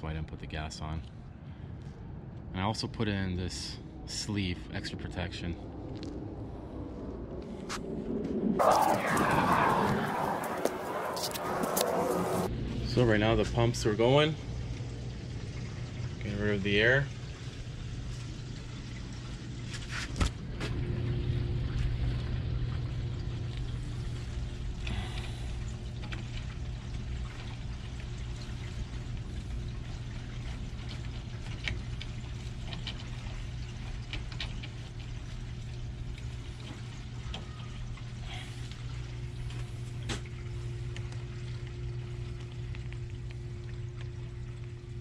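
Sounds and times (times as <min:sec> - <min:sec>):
pumps humming: 0:13.2 - 0:45.0
water gurgling in pipes: 0:13.2 - 0:45.0.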